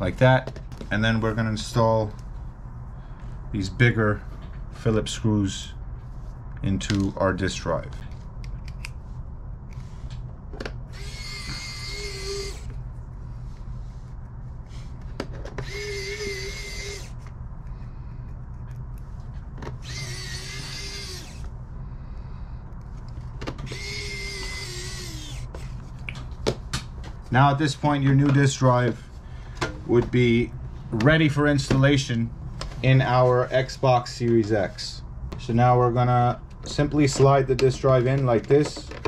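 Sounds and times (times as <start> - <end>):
electric screwdriver whirring: 10.9 - 12.7, 15.6 - 17.3, 19.8 - 21.5, 23.6 - 25.6.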